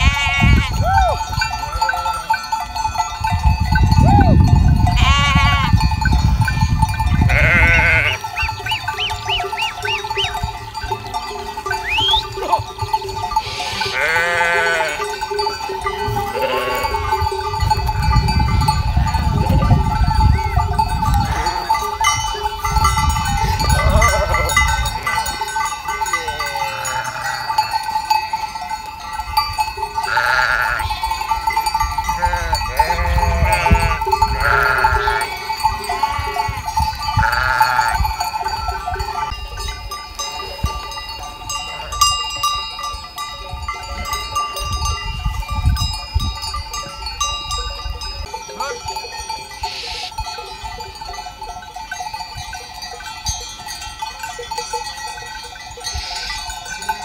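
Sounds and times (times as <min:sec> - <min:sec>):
sheep bleating: 0:00.0 - 0:00.9, 0:05.0 - 0:05.8, 0:07.3 - 0:08.3, 0:13.4 - 0:15.1, 0:16.1 - 0:17.2, 0:23.7 - 0:24.7, 0:26.2 - 0:27.6, 0:30.1 - 0:31.2, 0:32.1 - 0:36.6, 0:37.2 - 0:38.0
wind rumble on microphone: 0:00.0 - 0:01.8, 0:03.0 - 0:09.4, 0:16.0 - 0:25.3, 0:31.7 - 0:40.9, 0:43.5 - 0:48.3
sheep bells ringing: 0:00.0 - 0:57.0.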